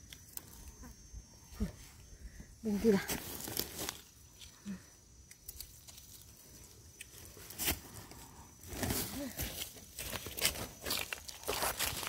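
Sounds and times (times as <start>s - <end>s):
leaves crunching underfoot: 2.8s - 4.5s, 8.7s - 12.0s.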